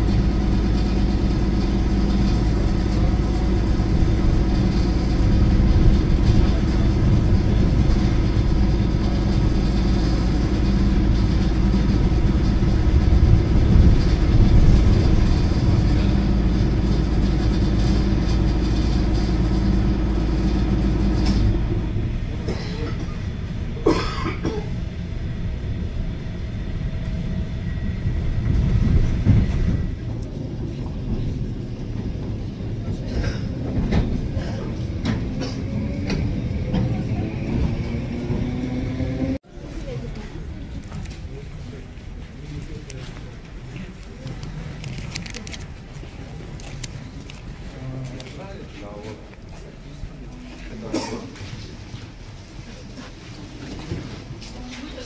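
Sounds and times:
electric train rumble: 0:00.0 - 0:55.0.

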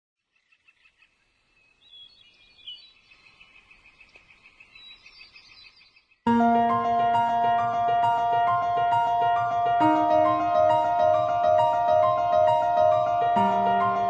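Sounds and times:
birds chirping: 0:00.3 - 0:14.0
piano music: 0:06.3 - 0:14.0.

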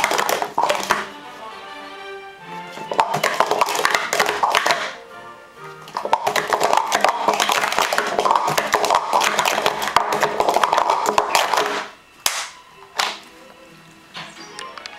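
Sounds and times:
plastic cups clattering: 0:00.0 - 0:01.1, 0:02.8 - 0:05.0, 0:05.9 - 0:13.2.

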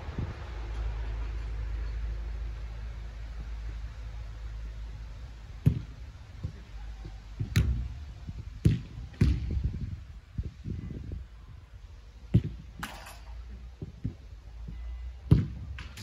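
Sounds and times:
steady low rumble: 0:00.0 - 0:16.0
footballs being kicked: 0:05.6 - 0:07.9, 0:08.6 - 0:09.8, 0:12.3 - 0:12.6, 0:15.3 - 0:15.9.

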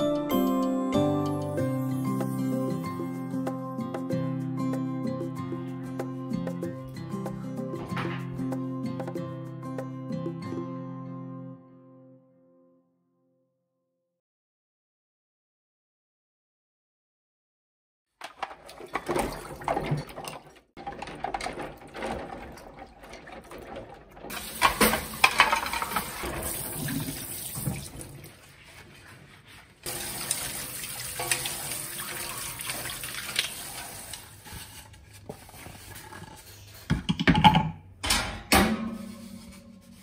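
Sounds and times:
clatter of items handled: 0:18.2 - 0:26.4
tap water running into sink: 0:21.6 - 0:28.4, 0:29.9 - 0:34.6.

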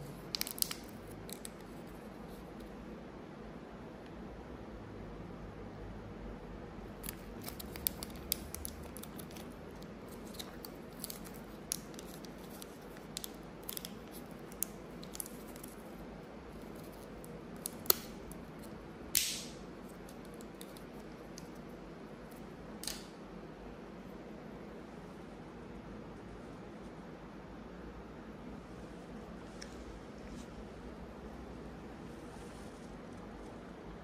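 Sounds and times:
candy wrapper crinkling: 0:00.2 - 0:02.0, 0:07.0 - 0:18.7.

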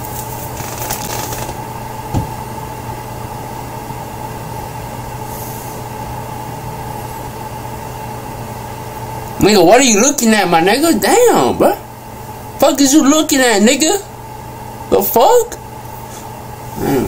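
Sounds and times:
low hum and hiss: 0:00.0 - 0:17.0
short thump: 0:02.1 - 0:02.4.

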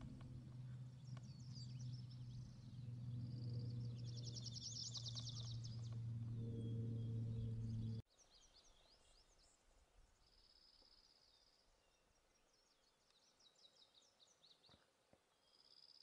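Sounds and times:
high bird trill: 0:00.0 - 0:08.0
faint birdsong chirps: 0:00.0 - 0:16.0.

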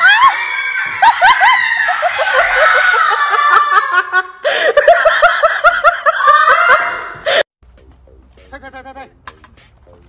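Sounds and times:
people laughing hard: 0:00.8 - 0:07.4.

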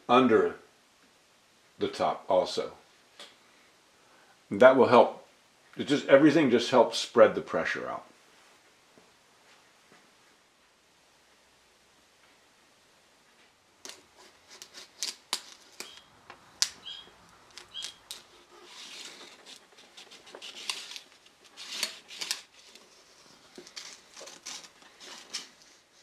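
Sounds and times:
knife scraping wood: 0:13.9 - 0:26.0.

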